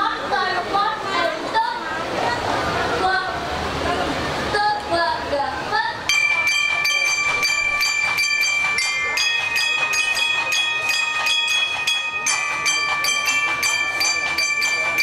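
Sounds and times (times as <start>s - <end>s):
steady percussion strokes: 6.0s - 15.0s.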